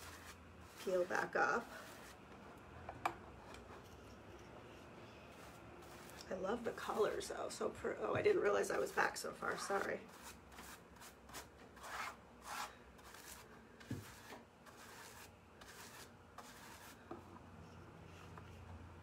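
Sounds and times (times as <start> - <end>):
paintbrush scratching on lampshade: 0.0 - 2.2, 3.7 - 7.5, 8.6 - 17.0.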